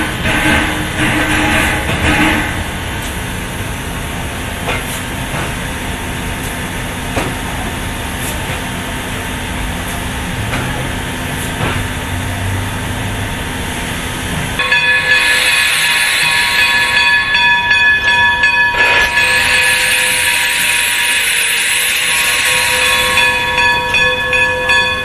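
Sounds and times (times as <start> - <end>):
steam hissing: 0.0 - 25.0.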